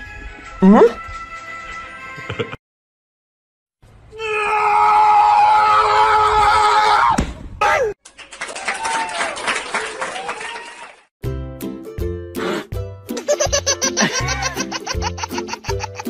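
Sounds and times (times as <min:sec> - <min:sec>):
person screaming: 0:04.2 - 0:08.0.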